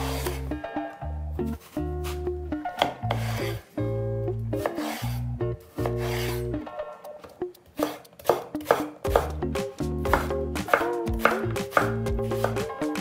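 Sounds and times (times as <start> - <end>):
knife slicing through eggplant: 0.0 - 0.5, 1.5 - 3.7, 4.6 - 6.5, 7.8 - 9.4, 10.1 - 12.7
background music: 0.0 - 13.0
knife chopping on cutting board: 2.8 - 3.6, 4.6 - 5.1, 7.8 - 13.0.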